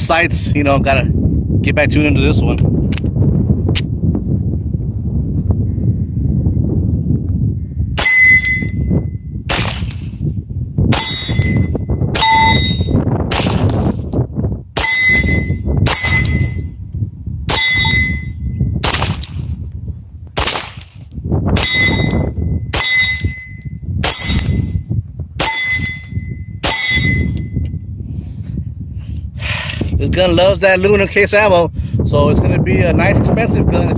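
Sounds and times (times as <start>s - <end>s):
wind rumble on microphone: 0.0s - 33.9s
metallic ping: 8.0s - 9.2s, 11.0s - 13.0s, 14.8s - 16.8s, 17.5s - 18.6s, 21.6s - 27.7s
pistol shots: 9.5s - 10.1s, 13.3s - 13.9s, 18.8s - 19.5s, 20.4s - 21.0s.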